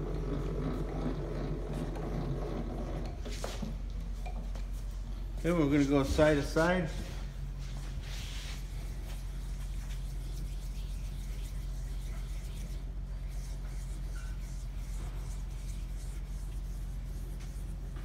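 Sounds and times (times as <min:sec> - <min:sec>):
milling table cranked by hand: 0:00.0 - 0:04.4
low machine hum: 0:00.0 - 0:18.0.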